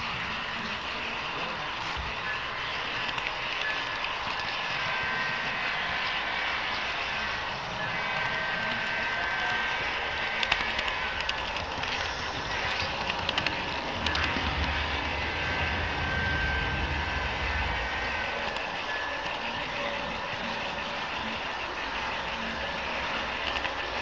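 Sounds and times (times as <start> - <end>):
model train running: 0.0 - 24.0
sharp clicks: 10.2 - 14.8
low rumble: 11.2 - 18.9.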